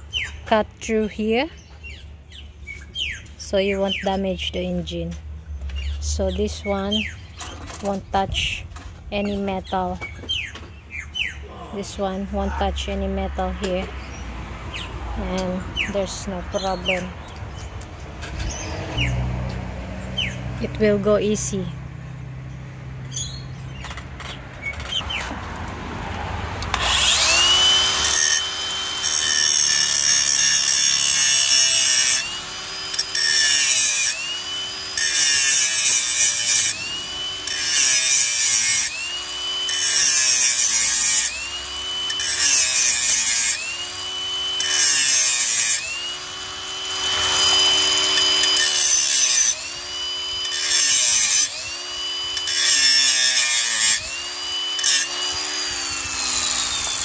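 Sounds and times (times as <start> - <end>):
power tool cutting metal: 11.2 - 21.7, 26.6 - 57.0.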